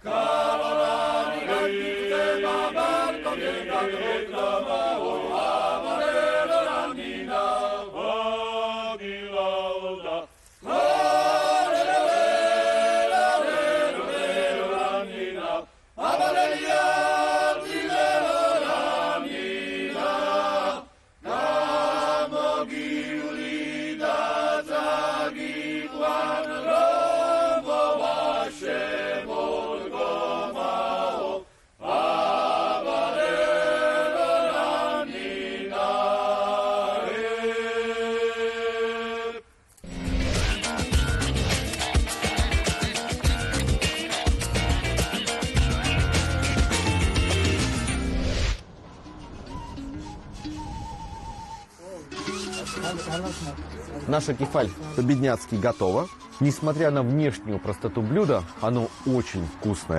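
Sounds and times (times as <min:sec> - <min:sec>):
male choir singing folk song: 0:00.0 - 0:39.5, 0:40.9 - 0:47.7.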